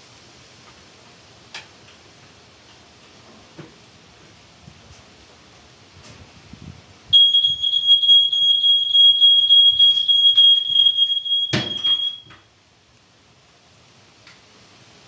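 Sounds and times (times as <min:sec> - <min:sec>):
smoke alarm tone: 0:07.1 - 0:12.4.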